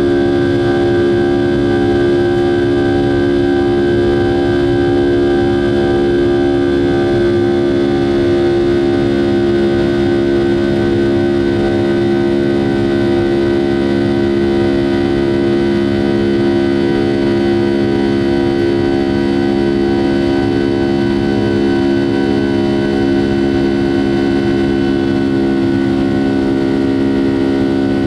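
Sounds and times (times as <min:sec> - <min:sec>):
jet engine drone in cabin: 0:00.0 - 0:28.0.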